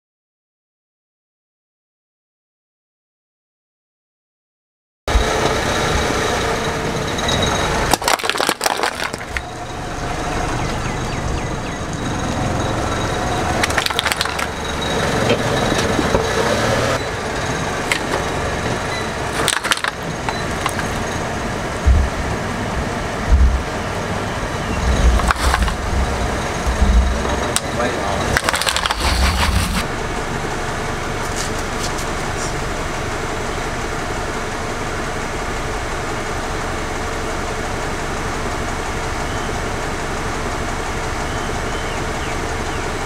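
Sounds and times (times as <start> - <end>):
steady background noise: 5.1 - 43.0
tyre crushing cans and bottles: 7.9 - 9.5, 13.6 - 14.6, 19.3 - 21.0, 24.9 - 26.0, 28.2 - 29.8
low thumps: 21.8 - 29.8.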